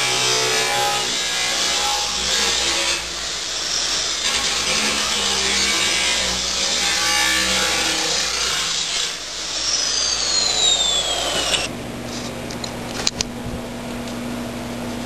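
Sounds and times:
angle grinder cutting metal: 0:00.0 - 0:11.7.

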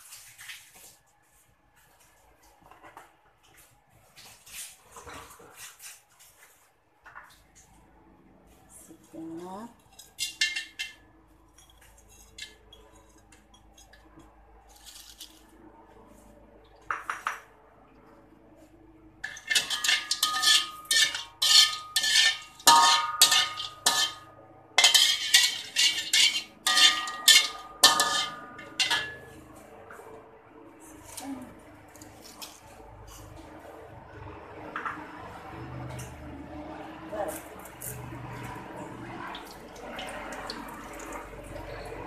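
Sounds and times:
metal fork scraping a wok: 0:09.9 - 0:11.0, 0:19.2 - 0:29.4.

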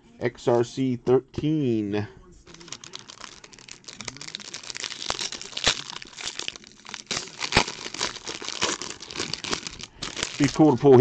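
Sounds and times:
foil wrapper crinkling and tearing: 0:02.5 - 0:11.0.

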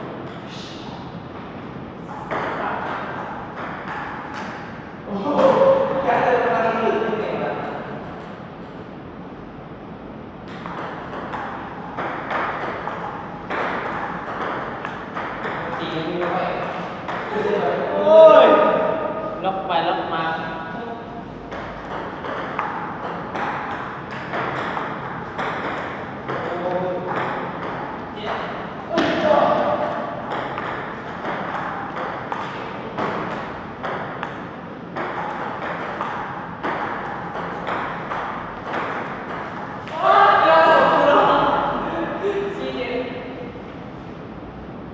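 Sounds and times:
table tennis ball clicking: 0:10.5 - 0:17.5, 0:21.5 - 0:28.6, 0:29.7 - 0:40.0.

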